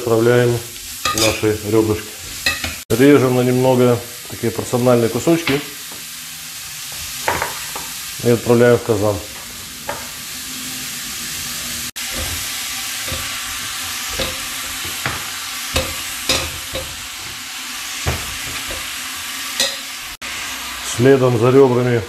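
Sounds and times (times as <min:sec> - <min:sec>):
vegetables sizzling in oil: 0:00.0 - 0:22.0
meat pieces knocking into pot: 0:12.0 - 0:20.0.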